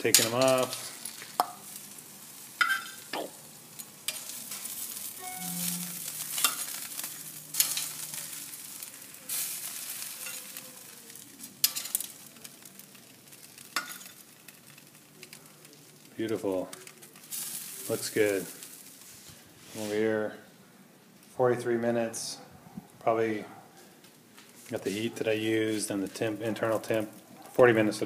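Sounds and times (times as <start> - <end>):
sizzling hiss: 0.0 - 20.0
metal tongs clicking on grill grate: 11.6 - 14.6.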